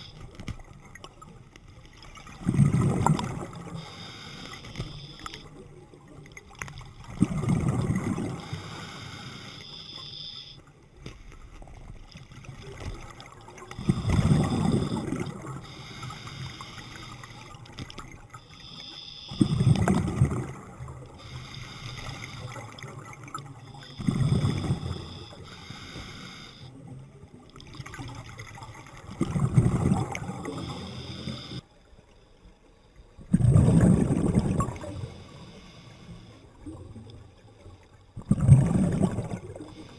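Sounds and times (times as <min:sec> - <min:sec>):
faint regulator hiss: 0:00.0 - 0:02.4, 0:03.4 - 0:07.1, 0:08.3 - 0:12.4, 0:13.6 - 0:19.9, 0:21.0 - 0:27.5, 0:30.2 - 0:33.2, 0:34.8 - 0:38.0, 0:39.6 - 0:39.9
diver exhaling bubbles: 0:02.4 - 0:03.8, 0:07.1 - 0:09.0, 0:13.8 - 0:15.6, 0:29.2 - 0:31.2, 0:33.3 - 0:35.1, 0:38.2 - 0:39.8.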